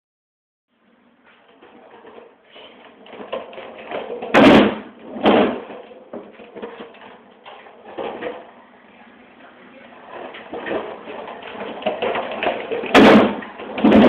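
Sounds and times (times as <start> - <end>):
skateboard wheels rolling on concrete: 1.2 - 8.8, 9.7 - 14.0
skateboard clattering bangs: 3.1 - 6.9, 10.5 - 14.0.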